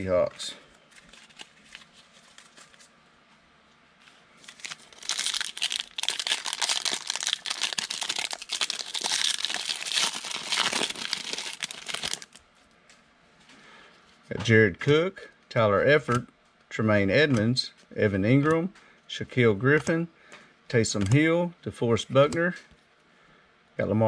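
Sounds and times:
foil wrapper tearing and crinkling: 4.4s - 12.4s.

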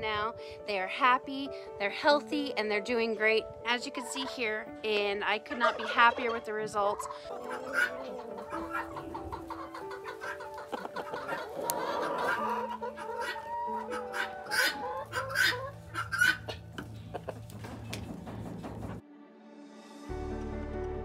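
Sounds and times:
soft background music: 0.0s - 21.0s
chickens clucking: 3.9s - 19.0s.

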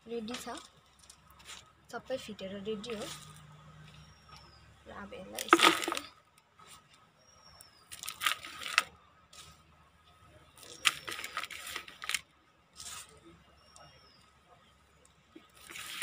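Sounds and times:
soil rustling into plastic pot: 5.3s - 6.1s, 7.8s - 9.6s, 10.6s - 13.2s, 15.4s - 16.0s.

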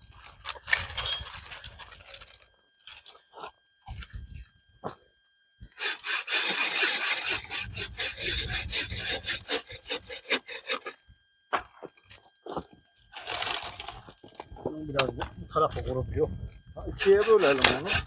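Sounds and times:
hand saw cutting log: 5.8s - 11.0s, 17.0s - 18.0s.

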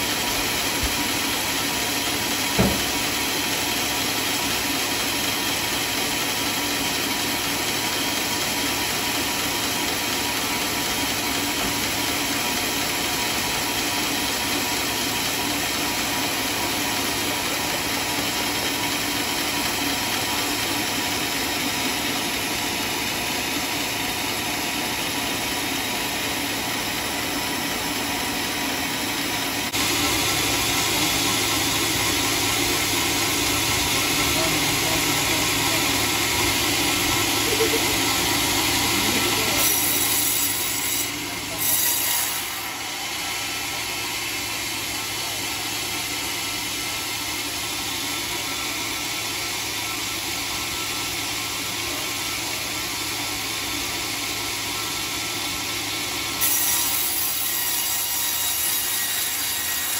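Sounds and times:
sawmill machine drone: 0.0s - 59.9s
sharp knock: 2.5s - 3.1s.

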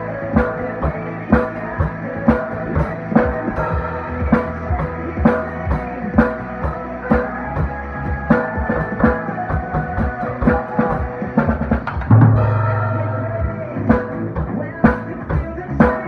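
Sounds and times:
rock song with guitar: 0.0s - 16.0s
snare drum played with sticks: 11.6s - 13.1s.

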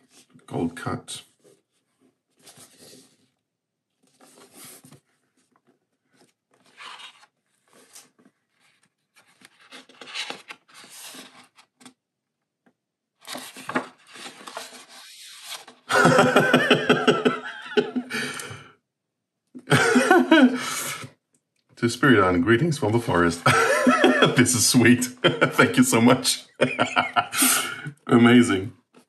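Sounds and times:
book pages rustling: 1.2s - 12.0s, 13.2s - 15.9s
man laughing: 15.9s - 18.7s, 19.6s - 21.1s, 23.1s - 28.4s.

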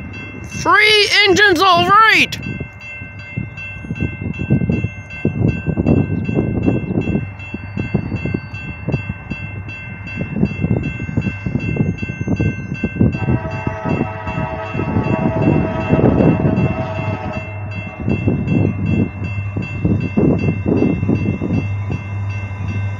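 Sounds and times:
railroad crossing bell ringing: 0.0s - 22.9s
locomotive horn: 13.2s - 19.0s.

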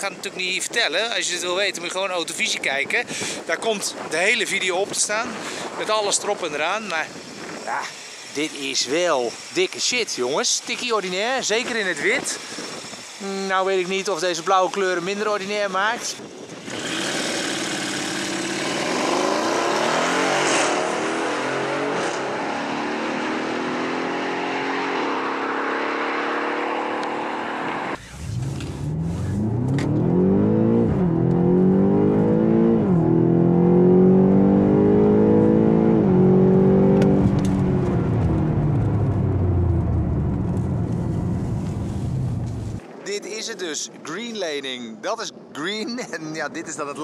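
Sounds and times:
suvs accelerating hard: 16.6s - 42.8s
engine accelerating heard from inside: 27.0s - 42.8s.

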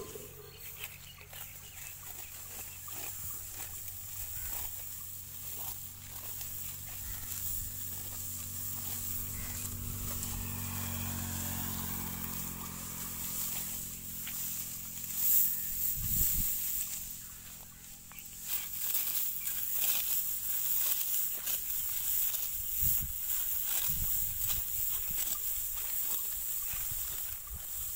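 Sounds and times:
low hum: 0.0s - 1.1s, 3.4s - 18.8s
sickle cutting wheat stalks: 0.0s - 27.9s
straw rustling: 0.0s - 27.9s.

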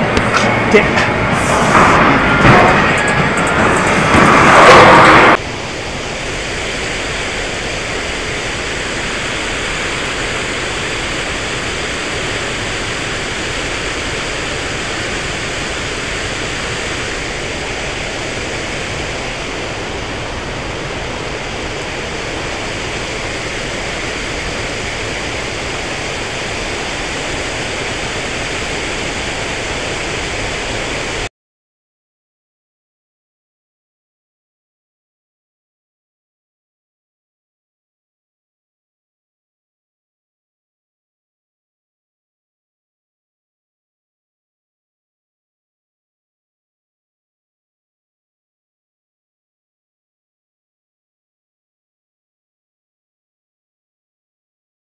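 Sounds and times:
river water rushing: 0.3s - 31.3s.

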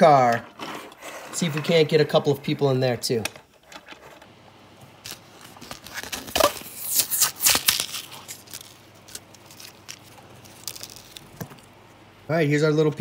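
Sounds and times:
plastic blister pack crinkling: 4.9s - 11.7s.

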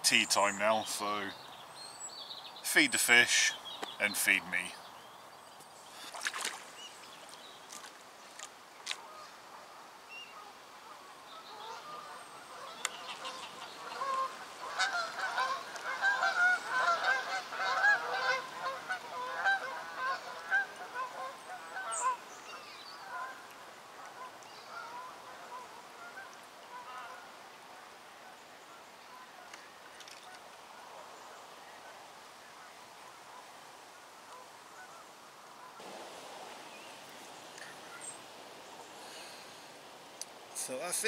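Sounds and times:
geese honking: 10.4s - 22.2s, 24.1s - 27.2s.

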